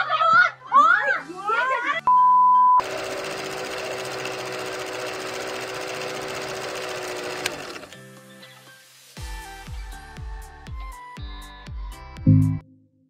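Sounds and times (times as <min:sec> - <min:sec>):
soft music: 0:07.5 - 0:13.0
deep bass thuds: 0:12.3 - 0:12.6.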